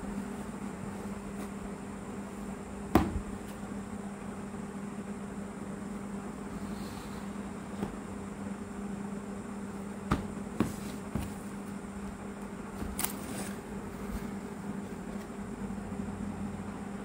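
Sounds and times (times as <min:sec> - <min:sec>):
steady low hum: 0:00.0 - 0:17.0
cardboard box handled: 0:10.1 - 0:11.8.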